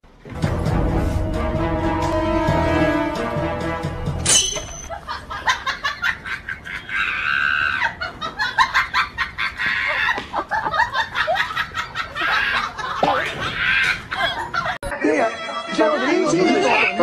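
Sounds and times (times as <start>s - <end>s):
people laughing: 4.9s - 16.3s.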